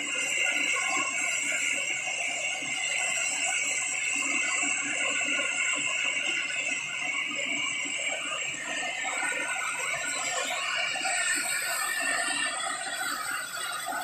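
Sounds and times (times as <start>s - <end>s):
gas hissing from pipeline: 0.0s - 14.0s.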